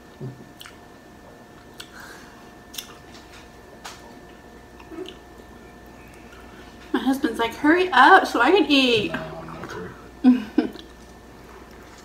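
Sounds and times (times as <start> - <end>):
quiet eating sounds: 0.0 - 7.6, 8.7 - 12.0
steady low hum: 0.0 - 12.0.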